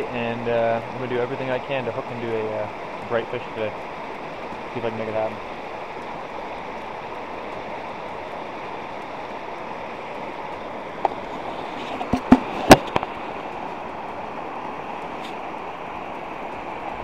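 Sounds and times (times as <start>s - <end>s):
river rushing over rapids: 0.0s - 17.0s
camera bumping knocks: 11.9s - 13.1s.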